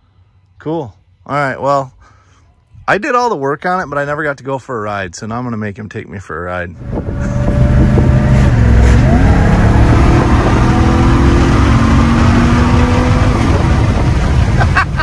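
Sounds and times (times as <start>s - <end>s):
car engine accelerating: 6.8s - 15.0s.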